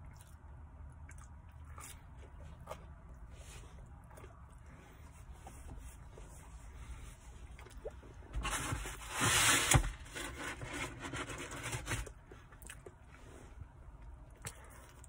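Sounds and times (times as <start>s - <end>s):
rubbing and rustling handling noise: 4.8s - 14.0s
sharp scrape: 8.4s - 12.1s.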